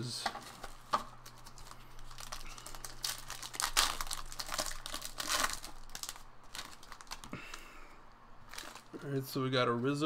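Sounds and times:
foil wrapper tearing and crinkling: 1.2s - 7.7s, 8.5s - 9.0s.

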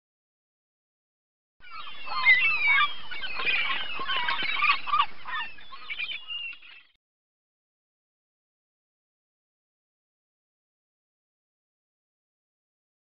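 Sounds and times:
geese honking: 1.6s - 6.6s.

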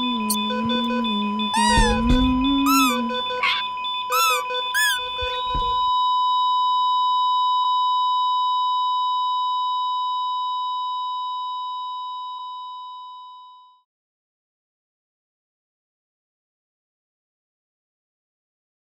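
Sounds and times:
long electronic beep: 0.0s - 13.2s.

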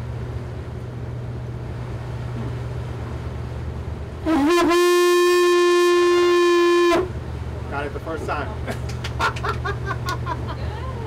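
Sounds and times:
motor boat humming: 0.0s - 11.0s
conch shell horn blown: 4.2s - 7.2s.

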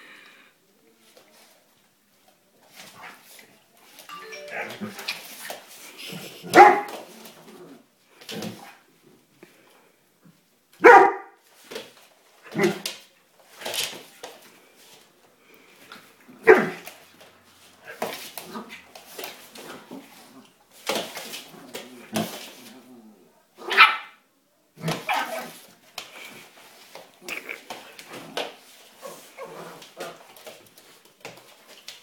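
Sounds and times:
dog barking: 6.6s - 6.9s, 10.8s - 11.4s, 16.4s - 16.8s, 23.7s - 24.2s.

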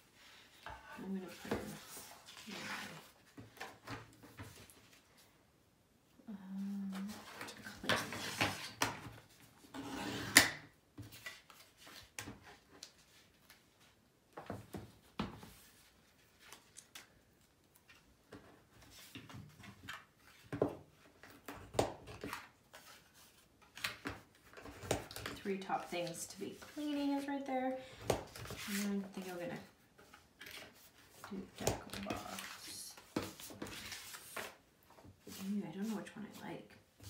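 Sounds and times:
paper rustling: 28.2s - 36.1s.

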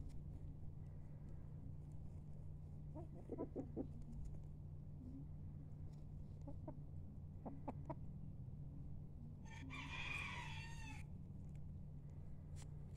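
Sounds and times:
chickens clucking: 2.9s - 4.2s, 6.4s - 6.8s, 7.4s - 8.1s
rooster crowing: 9.4s - 11.0s.

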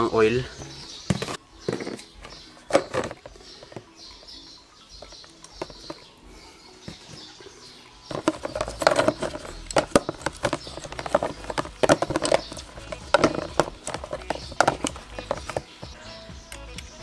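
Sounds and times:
clutch plates clicking and knocking: 8.1s - 15.7s.

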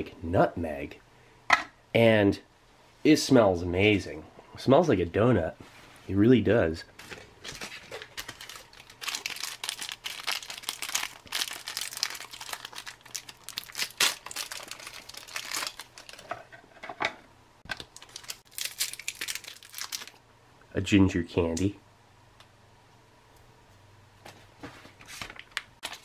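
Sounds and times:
plastic wrapper crinkling and tearing: 7.4s - 16.3s, 17.7s - 20.2s, 25.2s - 26.0s.

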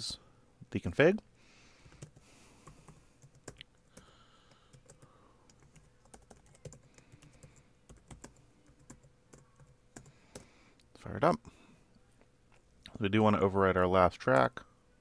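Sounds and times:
faint keyboard typing: 1.8s - 10.8s.

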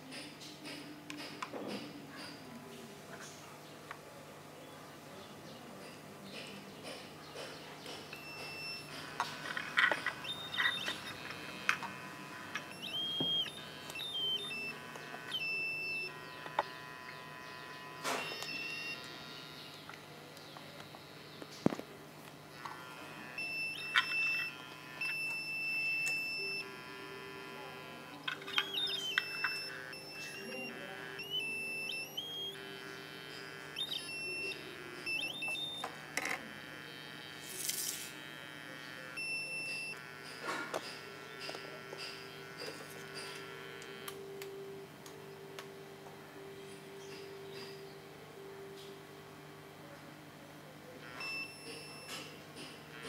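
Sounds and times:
high-pitched buzzer beeps: 6.3s - 20.0s, 22.5s - 49.8s, 51.0s - 53.0s
clicks: 27.3s - 36.5s.

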